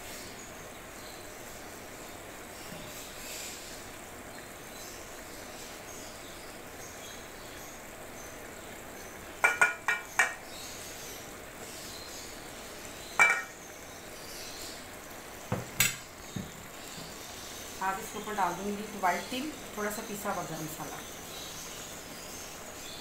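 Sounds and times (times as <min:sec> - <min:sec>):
faint steady hiss: 0:00.0 - 0:23.0
plate clinking against pot: 0:09.4 - 0:10.4, 0:13.2 - 0:13.6.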